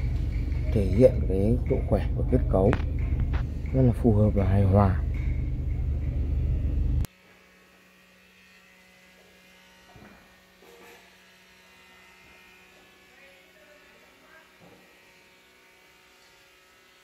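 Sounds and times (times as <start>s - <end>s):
loud low rumble: 0.0s - 7.1s.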